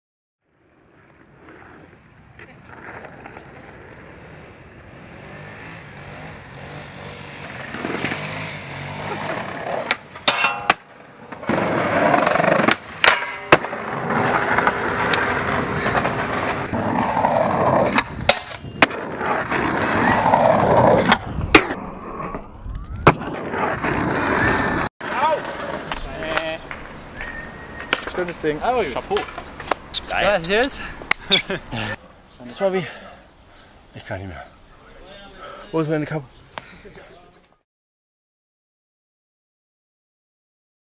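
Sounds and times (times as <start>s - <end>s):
skateboard wheels rolling on pavement: 0.4s - 32.7s
skateboard cracks and landings: 7.4s - 8.4s, 9.0s - 17.0s, 17.6s - 27.0s.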